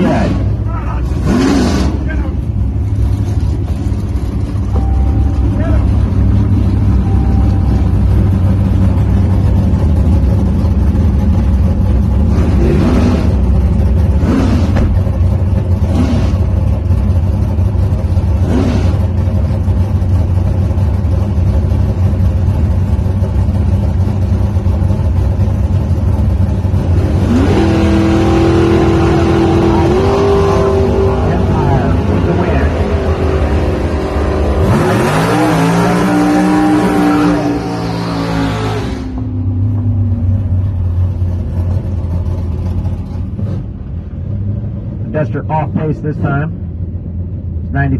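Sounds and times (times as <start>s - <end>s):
engine revving up: 0.0s - 2.4s, 12.2s - 15.0s, 15.8s - 16.6s, 18.4s - 19.2s, 26.8s - 39.5s
engine throttle blips: 0.0s - 47.9s
race car engines idling: 0.0s - 47.9s.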